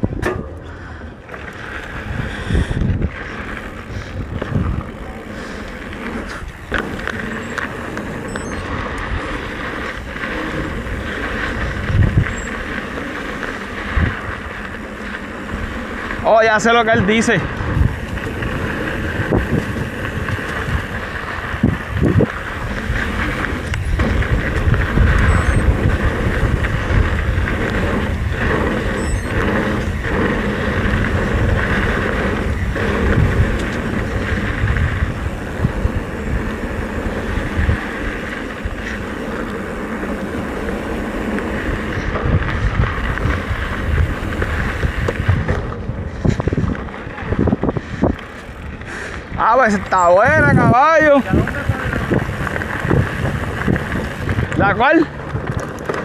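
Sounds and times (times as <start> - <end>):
bike knocks and rattles: 0.0 - 2.1, 2.8 - 48.8, 49.8 - 56.0
bike tyres on dirt trail: 0.0 - 56.0
wind on microphone: 0.0 - 56.0.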